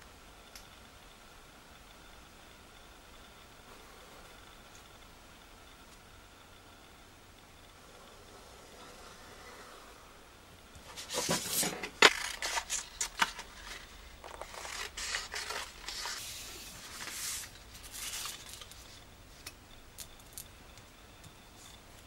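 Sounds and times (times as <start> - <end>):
paper rustling and scraping: 10.8 - 19.0.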